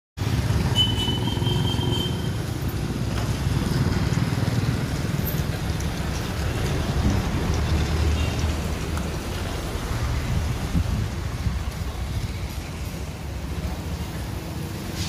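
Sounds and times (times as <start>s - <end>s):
motorcycles: 0.2s - 15.0s
road traffic rumble: 0.2s - 15.0s.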